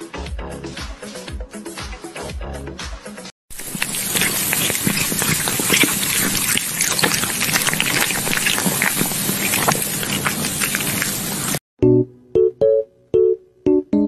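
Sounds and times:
meat sizzling on a grill: 0:03.6 - 0:11.6.

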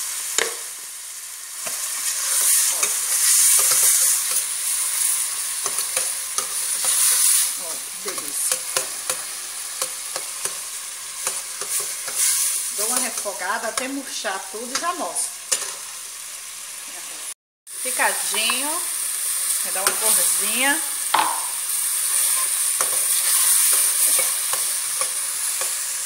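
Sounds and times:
vegetables sizzling in oil: 0:00.0 - 0:26.0
metal spoon scraping pan: 0:01.6 - 0:14.0, 0:15.5 - 0:15.8, 0:22.0 - 0:25.9.

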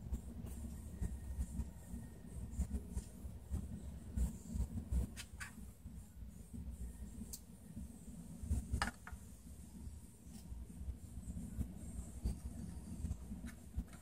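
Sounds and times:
faint clicks and scratches: 0:11.3 - 0:14.0.

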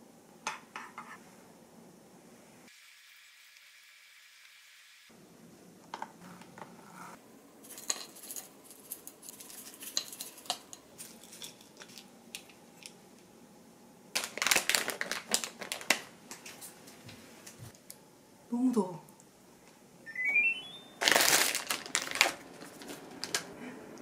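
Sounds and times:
paper bag crinkling: 0:14.2 - 0:16.1, 0:21.0 - 0:23.5
plastic bag rustling: 0:14.2 - 0:16.1, 0:21.0 - 0:23.5.

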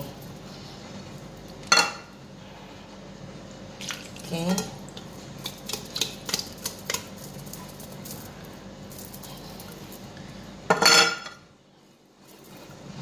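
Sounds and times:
metal kitchenware clinking: 0:10.7 - 0:11.4.

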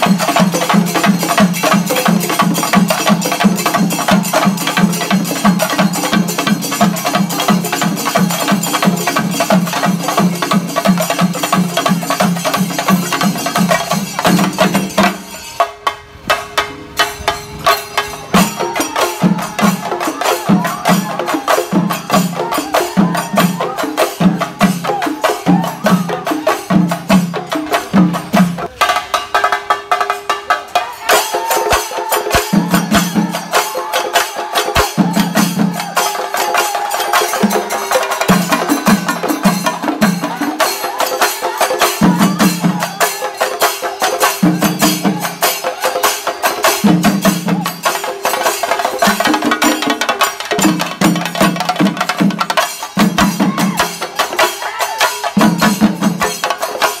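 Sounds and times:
drums beaten with sticks: 0:00.0 - 0:57.0
hand cymbals: 0:00.0 - 0:57.0.

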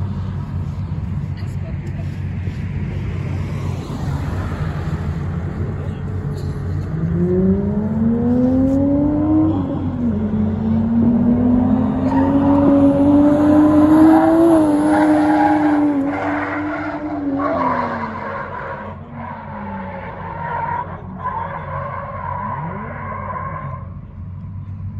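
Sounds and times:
car engine revving high: 0:06.8 - 0:23.8
tyre squeal: 0:12.0 - 0:12.8.

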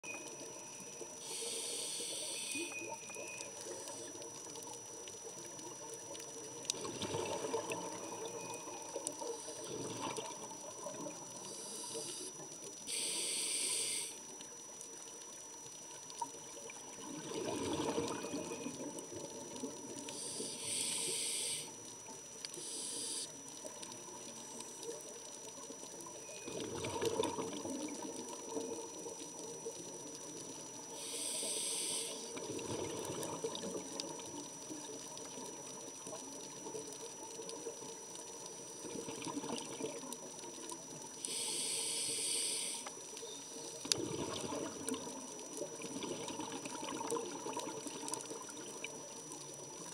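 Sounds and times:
regulator air hissing on inhale: 0:01.2 - 0:02.8, 0:09.2 - 0:09.9, 0:11.4 - 0:14.3, 0:20.1 - 0:21.9, 0:22.5 - 0:23.4, 0:30.9 - 0:32.4, 0:41.2 - 0:43.7
bubbles rumbling on exhale: 0:06.7 - 0:08.4, 0:16.6 - 0:19.8, 0:26.5 - 0:28.8, 0:32.4 - 0:34.3, 0:38.8 - 0:40.2, 0:43.8 - 0:49.0.

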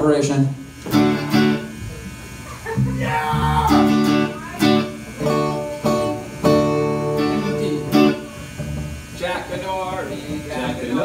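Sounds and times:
strummed guitar chords: 0:00.6 - 0:11.0
drums: 0:00.8 - 0:07.0
bass: 0:00.9 - 0:09.4.

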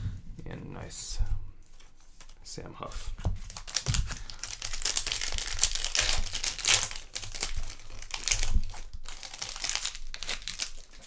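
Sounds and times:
plastic wrapper crinkling: 0:03.4 - 0:11.0.

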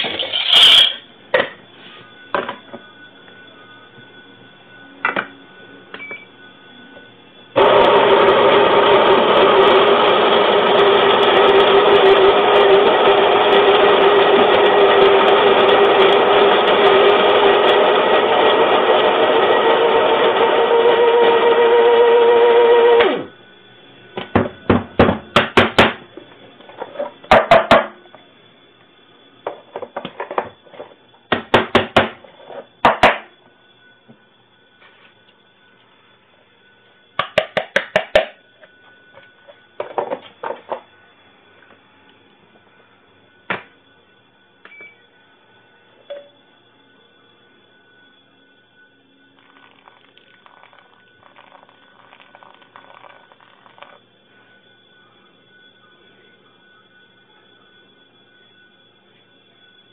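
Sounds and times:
kitchen appliance whirring: 0:00.0 - 0:01.6, 0:07.5 - 0:23.4, 0:49.4 - 0:54.0
electric coffee grinder humming: 0:07.5 - 0:26.6, 0:49.4 - 0:54.1.

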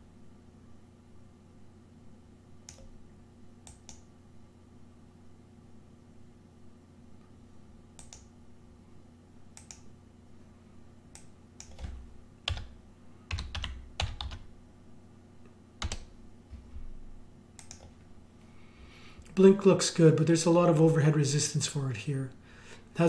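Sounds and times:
keyboard and mouse clicking: 0:02.6 - 0:03.0, 0:03.6 - 0:04.1, 0:08.0 - 0:08.3, 0:09.6 - 0:09.9, 0:11.1 - 0:12.7, 0:15.8 - 0:16.1, 0:17.6 - 0:18.0.

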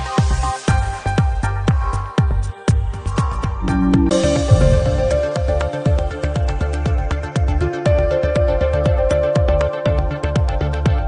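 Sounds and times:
steady kick drum: 0:03.6 - 0:06.0
held synth chords: 0:03.6 - 0:06.2.

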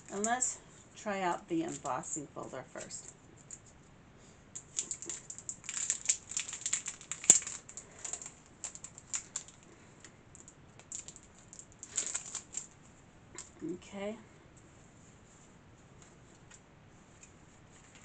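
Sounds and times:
plastic crinkling and clicking: 0:01.7 - 0:02.0, 0:04.6 - 0:13.6.

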